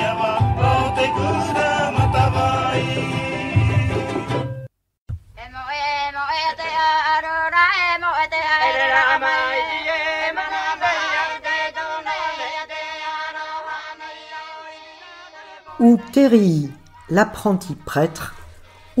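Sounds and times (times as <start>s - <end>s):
music with wavering singing: 0.0s - 4.6s.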